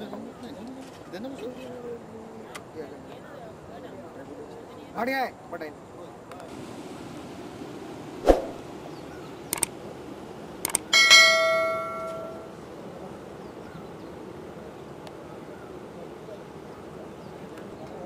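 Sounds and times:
faint steady hiss: 0.0s - 18.0s
mouse clicks: 9.5s - 9.7s
notification bell ding: 11.0s - 12.5s.

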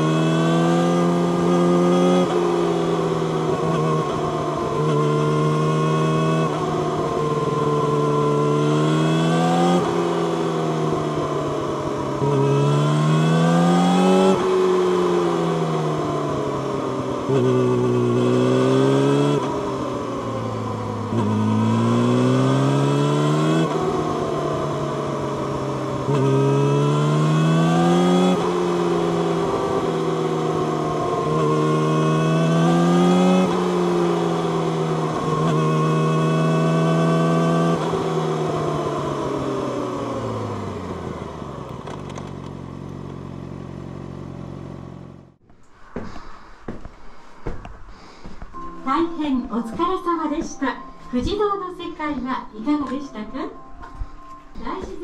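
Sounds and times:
motorcycle engine accelerating: 0.0s - 45.5s.

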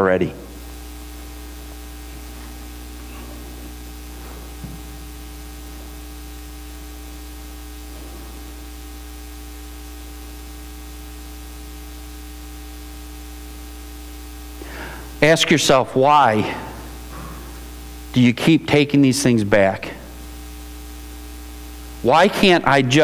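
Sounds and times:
constant hiss: 0.0s - 23.0s
electrical mains hum: 0.0s - 23.0s.

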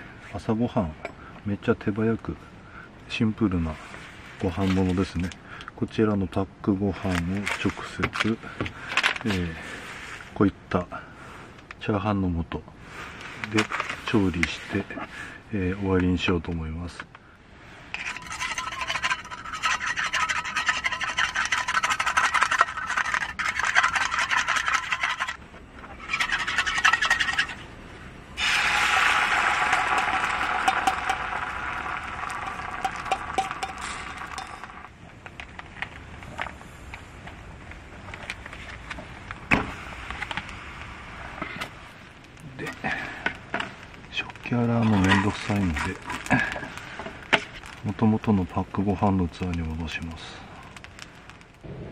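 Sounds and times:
egg sizzling in hot frying pan: 17.9s - 27.6s, 28.4s - 36.4s, 39.4s - 49.9s
egg beaten in metal cup: 18.0s - 25.4s, 26.0s - 27.6s, 28.4s - 34.9s.

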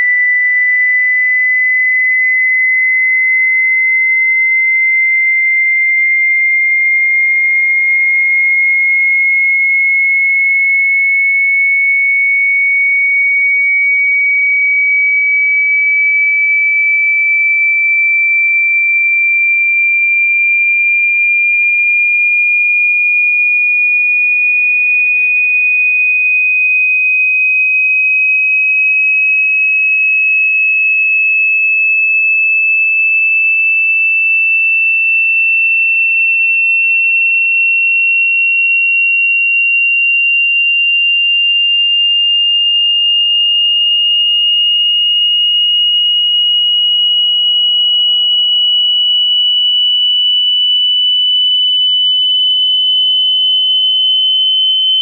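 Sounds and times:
sine tone rising in pitch: 0.0s - 7.8s, 39.7s - 55.0s.

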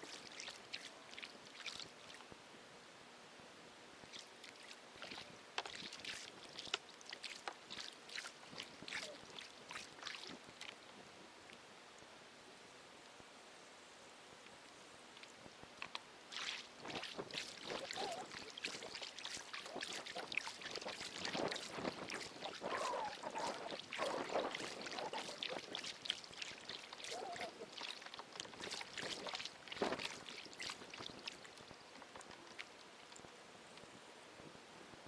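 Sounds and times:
water splashing and gurgling: 0.0s - 2.3s, 4.1s - 10.8s, 15.8s - 33.2s.

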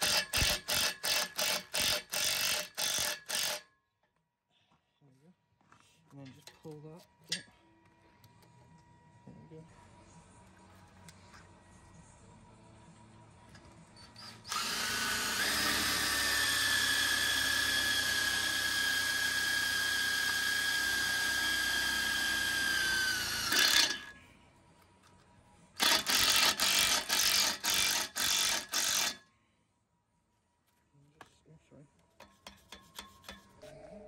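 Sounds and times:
cordless drill whining: 14.2s - 24.1s.

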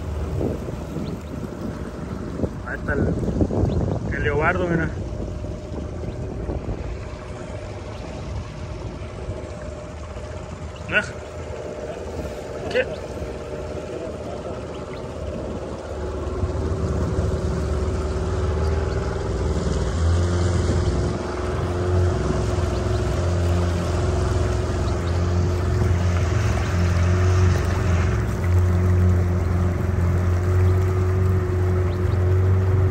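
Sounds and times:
wind noise: 0.0s - 10.8s, 14.7s - 32.9s
motorboat engine running: 0.0s - 32.9s
rushing water: 0.0s - 32.9s.

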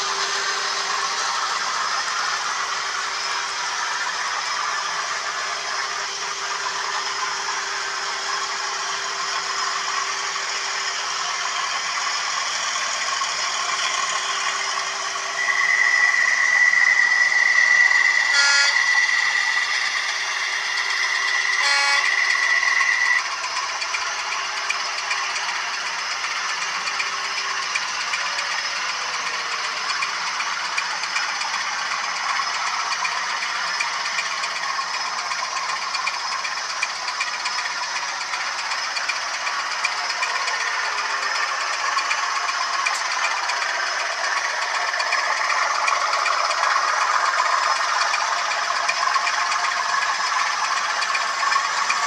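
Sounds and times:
model trains rattling on track: 0.0s - 52.0s
high steady tone: 15.3s - 23.2s.

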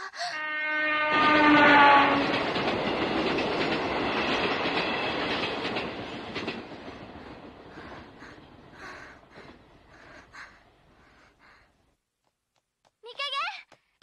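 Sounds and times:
train horn: 0.3s - 2.6s
train wheels clickety-clack: 1.5s - 10.2s.

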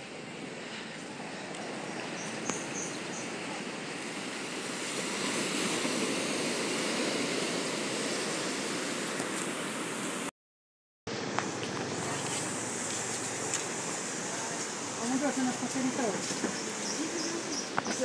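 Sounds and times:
surf breaking on beach: 0.1s - 10.3s.

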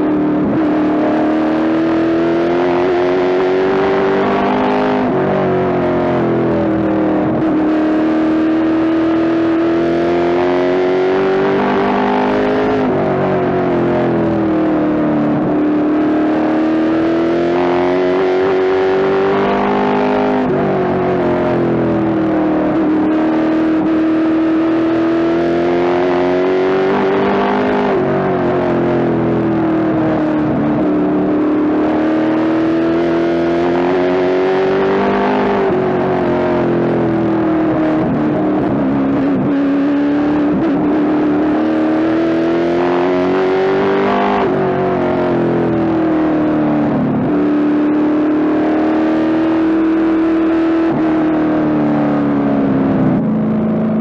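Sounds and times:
race car engine at speed: 0.0s - 54.0s.

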